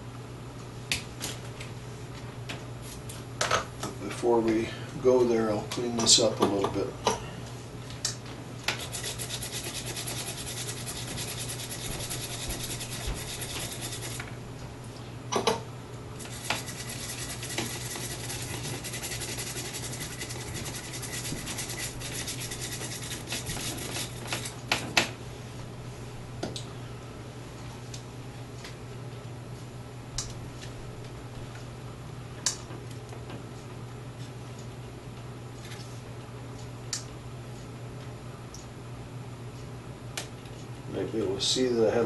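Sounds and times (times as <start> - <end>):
brush scrubbing circuit board: 8.8 - 14.2, 16.3 - 24.5.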